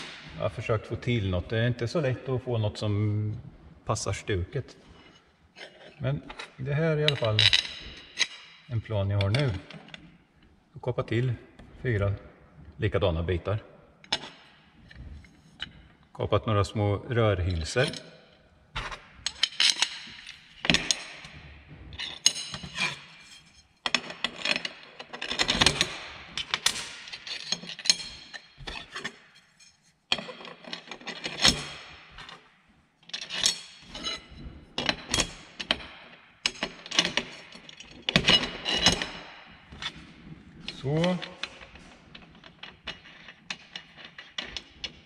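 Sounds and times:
metal clinking and rattling: 4.8 - 10.6, 17.5 - 45.0.

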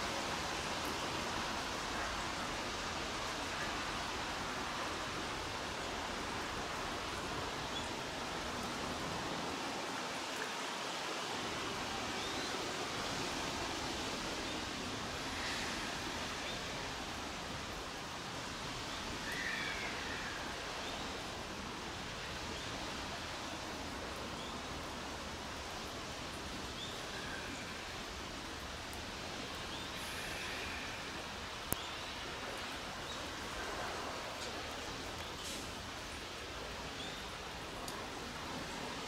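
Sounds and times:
light rain hiss: 0.0 - 39.0.

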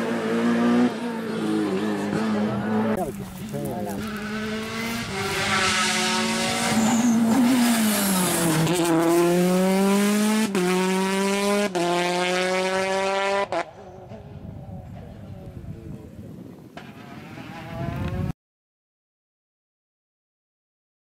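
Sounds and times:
rally car engine accelerating: 3.8 - 14.2.

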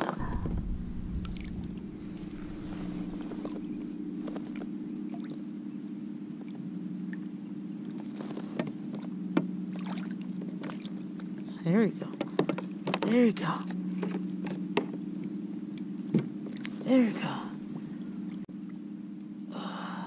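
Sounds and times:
low engine hum: 0.0 - 20.0.

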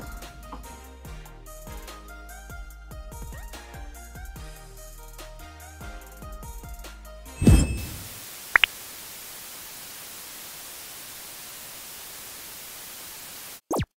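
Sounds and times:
falling swoop: 7.4 - 8.2
high blips: 7.4 - 8.7
static hiss: 7.4 - 13.7.

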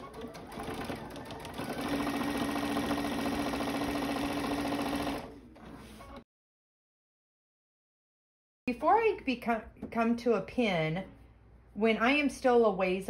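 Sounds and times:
sewing machine stitching: 0.0 - 5.3.

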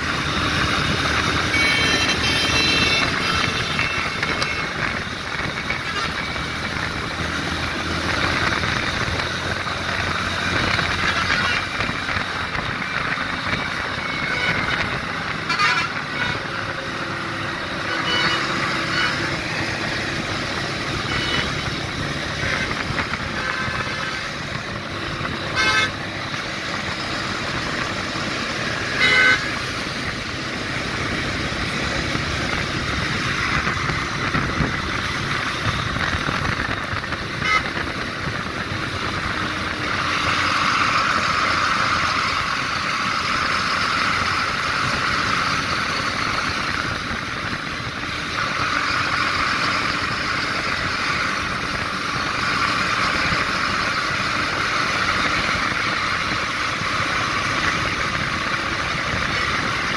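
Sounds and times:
highway traffic noise: 0.0 - 59.9
steady rushing noise: 0.0 - 59.9
vehicle horn toots: 1.4 - 4.8, 14.0 - 16.5, 17.8 - 19.6, 21.0 - 21.7, 22.4 - 24.4, 25.4 - 26.0, 28.8 - 29.6, 37.3 - 37.8.

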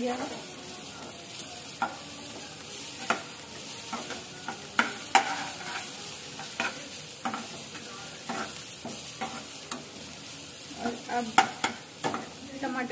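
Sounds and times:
onions sizzling in hot oil: 0.0 - 12.9
metal spatula scraping pan: 3.9 - 10.1.

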